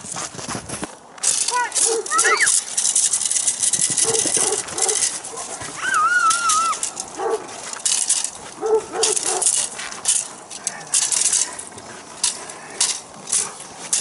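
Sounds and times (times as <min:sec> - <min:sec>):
feet crunching in snow: 0:04.0 - 0:10.4.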